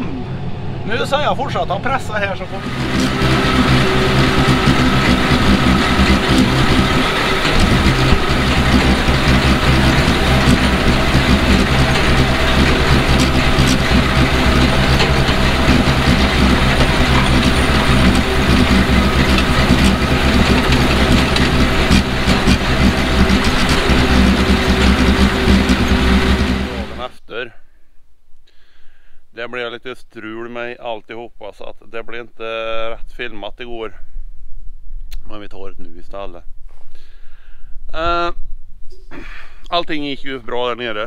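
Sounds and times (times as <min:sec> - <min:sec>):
tractor diesel engine under load: 0:00.0 - 0:27.1.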